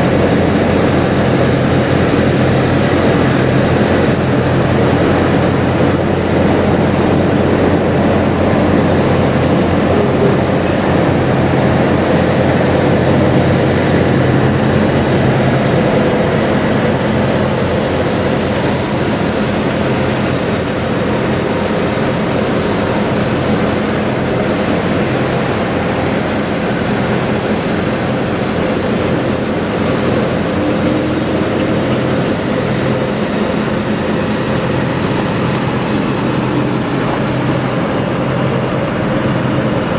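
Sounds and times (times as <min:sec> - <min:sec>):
diesel truck engine idling: 0:00.0 - 0:39.9
high hiss: 0:00.0 - 0:39.9.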